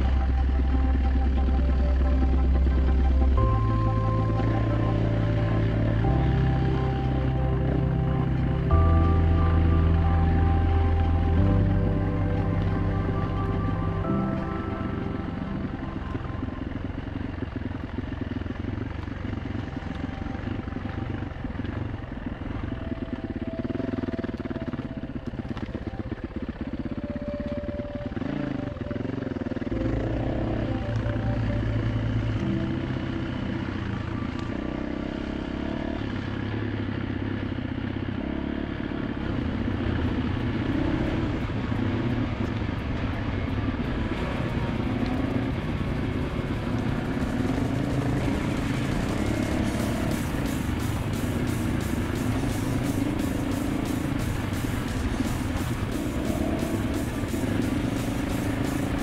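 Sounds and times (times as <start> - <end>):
dirt bike engine revving: 28.1 - 59.0.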